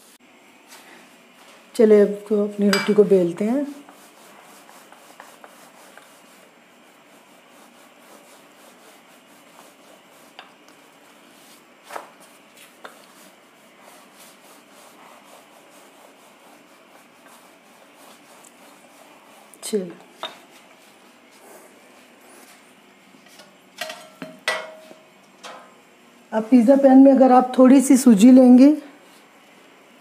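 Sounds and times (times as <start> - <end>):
rolling pin rubbing on dough: 0.0 - 22.8.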